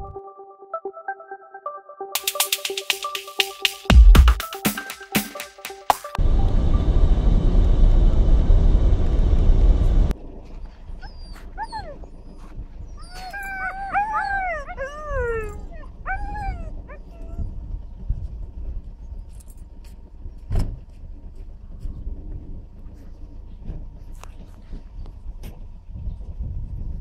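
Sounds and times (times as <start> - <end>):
loud steady rumble: 6.2 - 11.0, 15.1 - 27.0
huskies whining and howling: 10.5 - 17.8.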